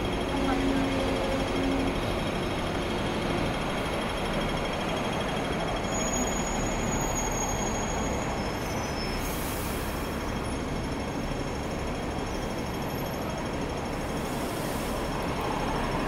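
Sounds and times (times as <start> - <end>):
tram rumbling on rails: 0.0 - 16.0
faint high squeal: 5.8 - 10.6.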